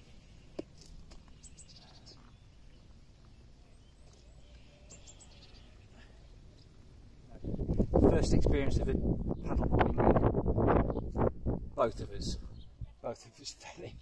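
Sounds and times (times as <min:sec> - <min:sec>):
small birds chirping: 0:00.0 - 0:14.0
low wind rumble: 0:05.1 - 0:13.0.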